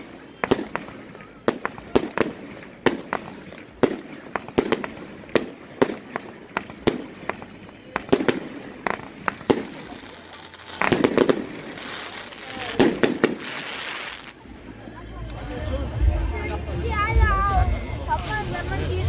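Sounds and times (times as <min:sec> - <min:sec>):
fireworks bangs: 0:00.0 - 0:14.5.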